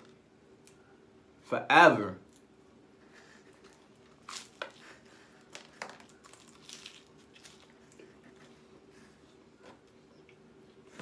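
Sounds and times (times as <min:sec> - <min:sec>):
faint steady hum: 0:00.0 - 0:11.0
pizza crust crunching: 0:03.2 - 0:08.6.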